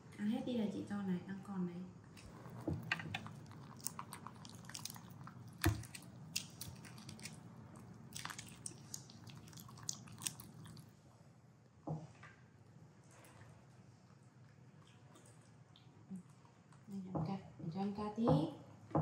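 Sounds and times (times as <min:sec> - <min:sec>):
monkey chewing with wet crunches: 0:02.3 - 0:10.9.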